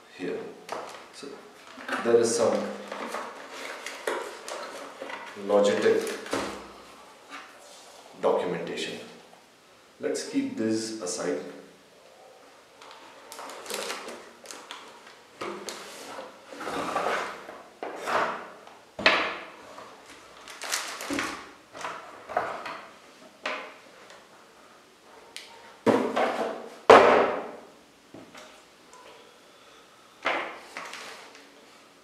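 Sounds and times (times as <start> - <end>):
cardboard and plastic rustling: 0.7 - 6.8, 12.8 - 18.2, 19.7 - 22.8, 30.6 - 31.8.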